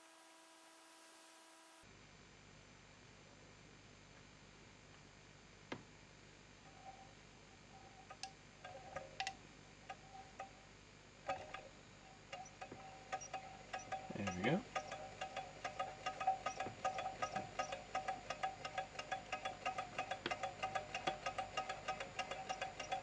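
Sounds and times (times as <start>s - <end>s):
engine linkage ticking and ringing: 12.3s - 23.0s.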